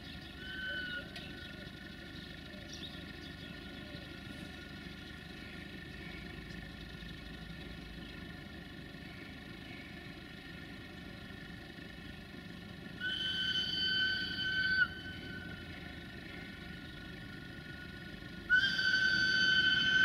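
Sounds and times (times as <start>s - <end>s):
low engine rumble: 0.0s - 20.0s
locomotive whistle blasts: 0.4s - 1.2s, 13.0s - 15.7s, 18.5s - 20.0s.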